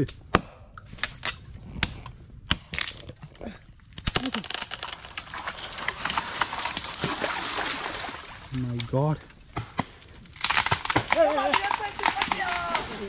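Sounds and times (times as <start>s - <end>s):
twigs snapping and leaves rustling: 0.9s - 13.0s
machete chopping wood: 9.6s - 13.0s.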